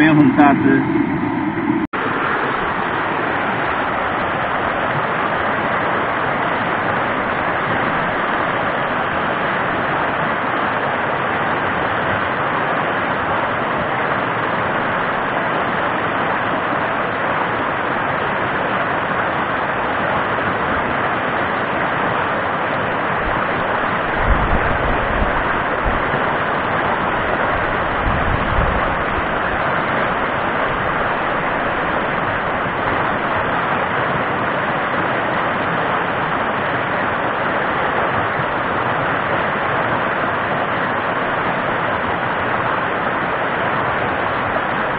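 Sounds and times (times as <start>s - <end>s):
water rushing over rapids: 0.0s - 44.9s
wind buffeting microphone: 23.1s - 34.2s.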